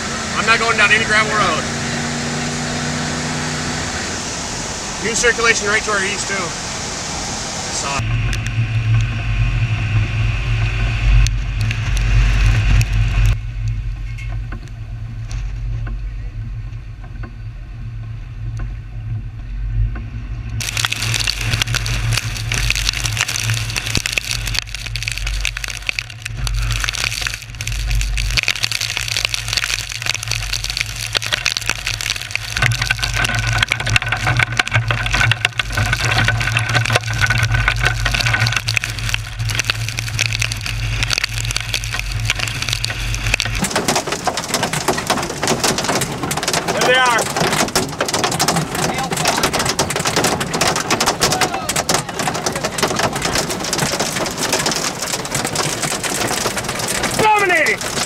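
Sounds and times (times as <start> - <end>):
hiss of rain and tyre spray: 0.0 - 13.4, 29.4 - 58.0
road and engine rumble: 0.0 - 58.0.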